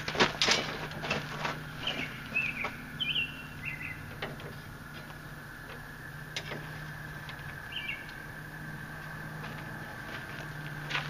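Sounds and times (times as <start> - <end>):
rake knocks and clicks: 0.0 - 2.0
steady low hum: 0.0 - 11.0
small bird chirping: 1.8 - 4.2, 6.9 - 8.3.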